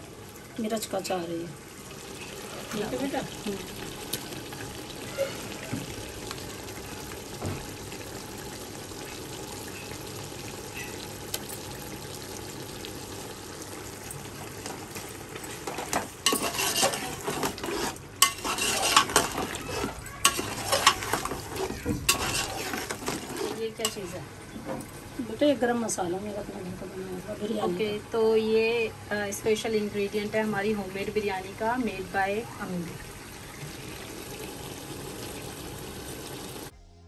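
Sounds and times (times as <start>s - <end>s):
chicken sizzling in oil: 0.0s - 36.7s
spoon scraping pot: 15.5s - 24.1s.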